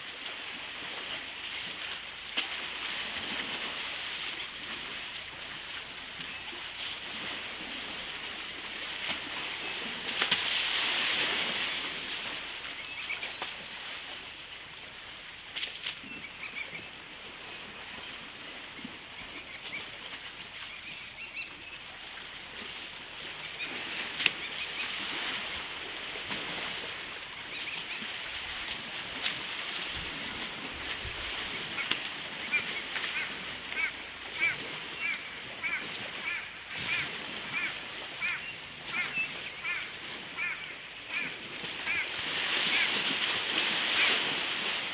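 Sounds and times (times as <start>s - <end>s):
elephants splashing water: 0.0s - 12.7s, 22.0s - 40.5s, 41.1s - 44.9s.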